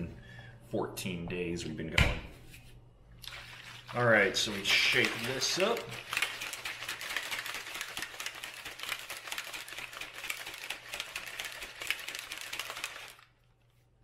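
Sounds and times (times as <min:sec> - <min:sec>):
plastic bottle shaken rattling: 0:03.2 - 0:13.5.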